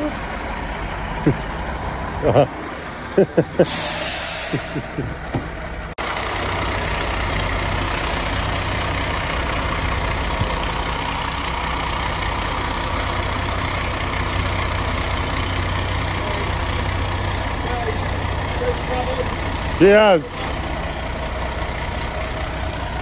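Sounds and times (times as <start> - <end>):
diesel engine idling: 0.0 - 23.0.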